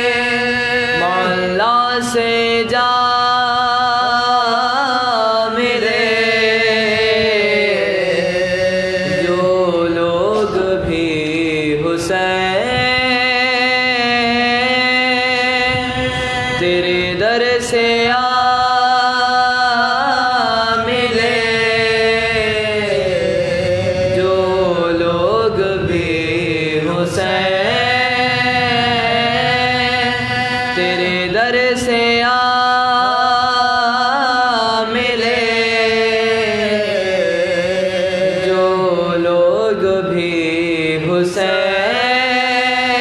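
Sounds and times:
low held drone note: 0:14.1 - 0:17.8
men chanting an elegy: 0:20.0 - 0:31.4.

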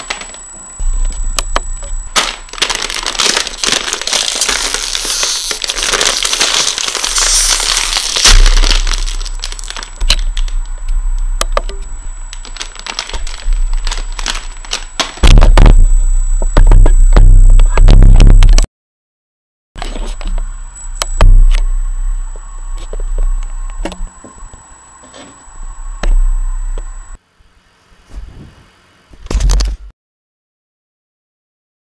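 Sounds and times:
chip bag crinkling and tearing: 0:02.1 - 0:10.6, 0:12.3 - 0:15.2.

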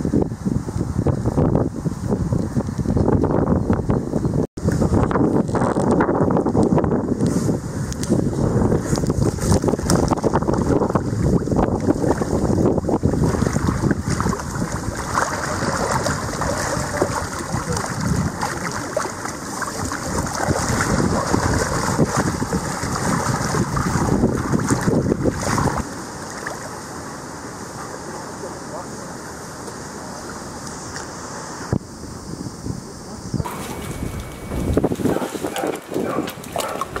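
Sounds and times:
wind buffeting microphone: 0:00.0 - 0:26.6, 0:31.6 - 0:37.0
dogs splashing in water: 0:13.0 - 0:26.8, 0:33.5 - 0:37.0.

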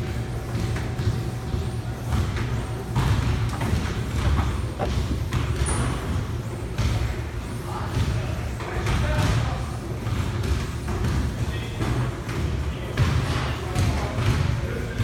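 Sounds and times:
exercise machines rumbling: 0:00.0 - 0:08.8
soft thuds: 0:02.2 - 0:06.0.

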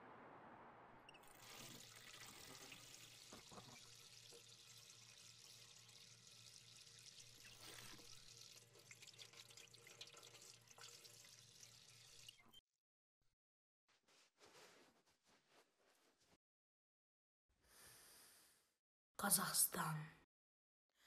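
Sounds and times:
tap water running into sink: 0:01.2 - 0:12.4.

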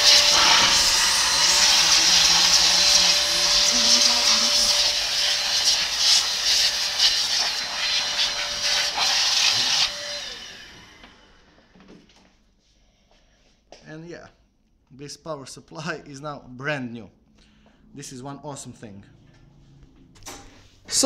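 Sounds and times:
electric duster blowing air: 0:00.0 - 0:11.7.

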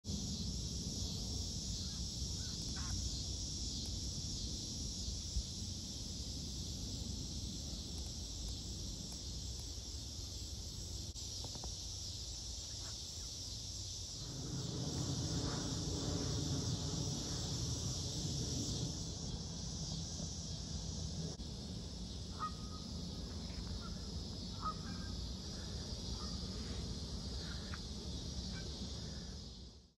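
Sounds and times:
cicadas droning: 0:00.0 - 0:30.0
low rumble: 0:14.2 - 0:22.0
geese honking: 0:22.3 - 0:22.8, 0:24.6 - 0:25.1.

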